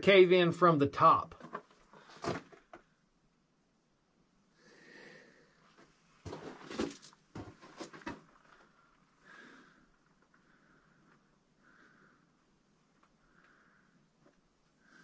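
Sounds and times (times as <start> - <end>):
footsteps on loose rock: 1.4 - 2.6, 6.2 - 8.7
soft breaths: 4.5 - 6.2, 8.3 - 15.0.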